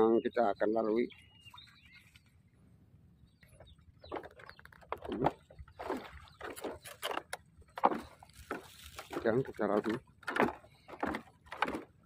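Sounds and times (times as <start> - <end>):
bamboo poles creaking under footsteps: 3.4 - 12.0.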